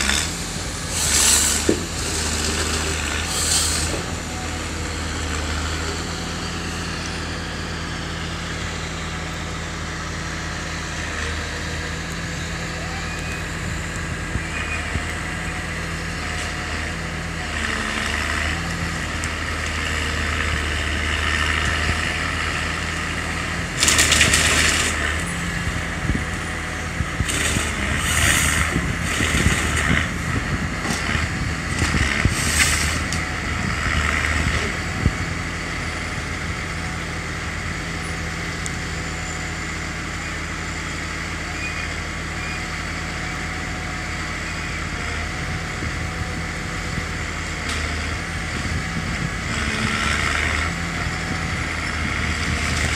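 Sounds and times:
harvester engine running: 0.0s - 52.9s
log cracking and crunching: 23.7s - 25.1s.

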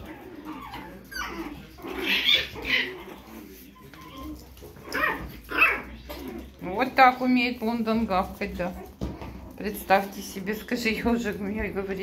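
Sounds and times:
puppy yapping: 0.0s - 5.9s.

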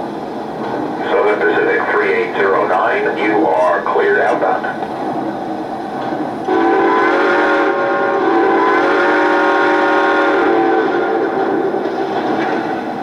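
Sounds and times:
model train steam whistle: 6.4s - 11.8s.

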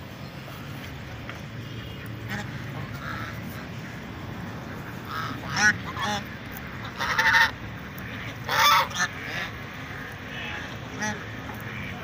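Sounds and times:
steady low background noise: 0.0s - 12.0s
waterfowl nasal calls: 1.6s - 3.8s, 4.9s - 12.0s.

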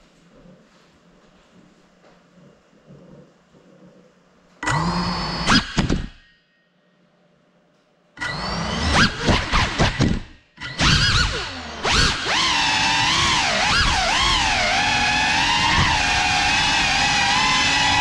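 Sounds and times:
quadcopter motors whining: 8.2s - 18.0s.

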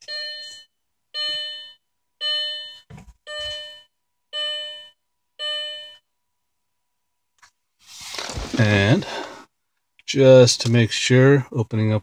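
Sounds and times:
car warning chime dinging: 0.0s - 6.1s.

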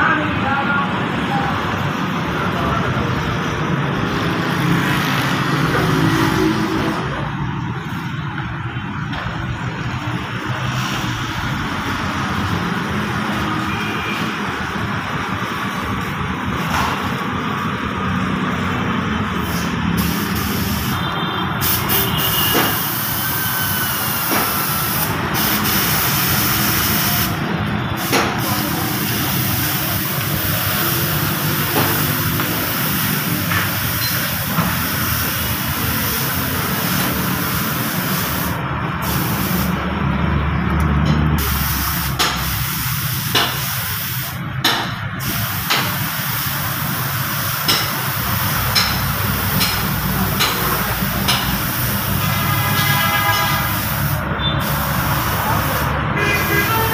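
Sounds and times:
spray gun hissing: 19.4s - 39.8s, 41.4s - 44.4s, 45.2s - 56.9s.

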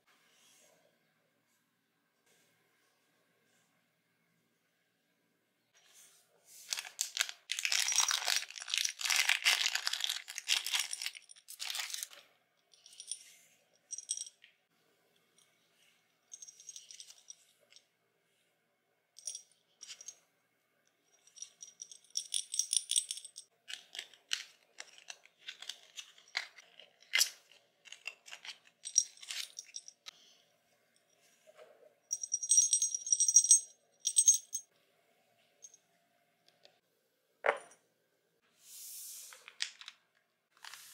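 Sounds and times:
plastic packaging crinkling: 6.7s - 12.2s.

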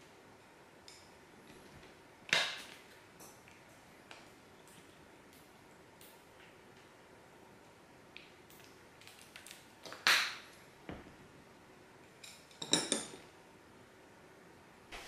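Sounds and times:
tableware clicking on wood: 12.2s - 13.2s.

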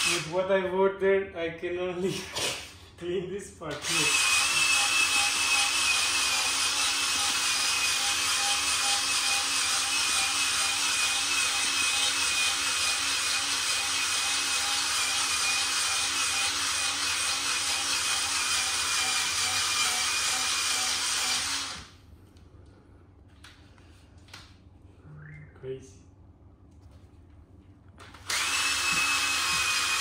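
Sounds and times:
electric drill motor whine: 3.8s - 21.9s, 28.2s - 30.0s.

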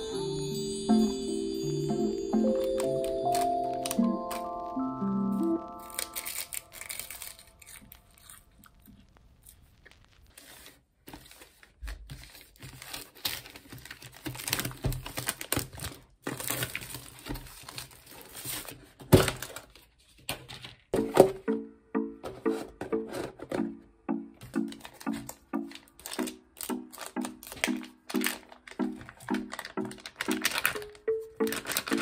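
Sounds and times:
plastic packaging crinkling: 2.3s - 20.9s, 24.5s - 32.0s.

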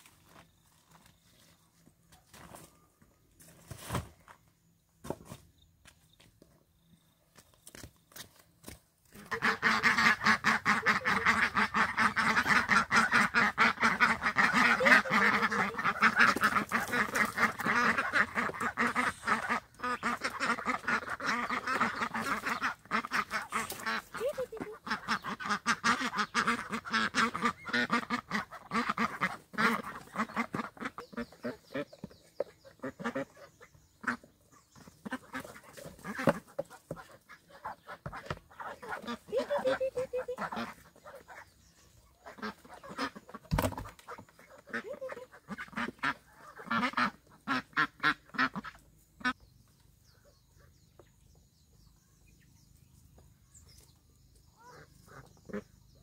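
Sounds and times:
ducks quacking: 9.1s - 49.4s, 54.5s - 56.0s.

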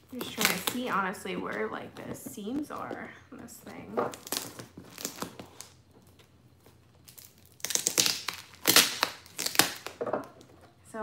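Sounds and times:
packing tape ripping and crackling: 0.0s - 1.2s, 3.6s - 10.0s.

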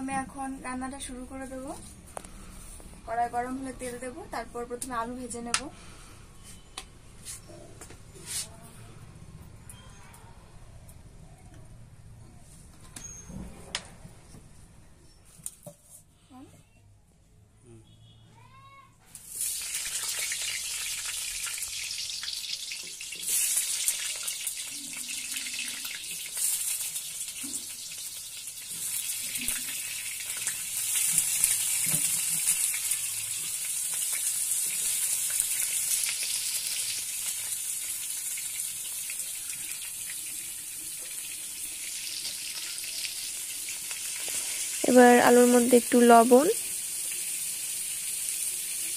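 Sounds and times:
potatoes sizzling in hot oil: 19.1s - 48.9s.

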